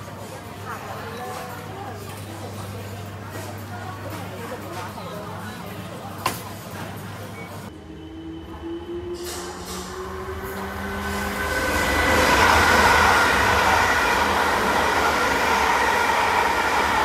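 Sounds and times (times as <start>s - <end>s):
train rumbling past: 7.7s - 17.0s.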